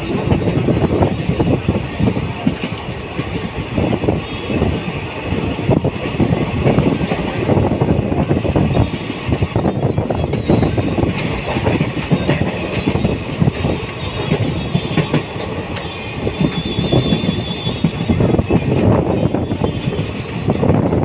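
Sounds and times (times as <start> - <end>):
train rolling rush: 0.0 - 21.0
train wheels clickety-clack: 0.0 - 21.0.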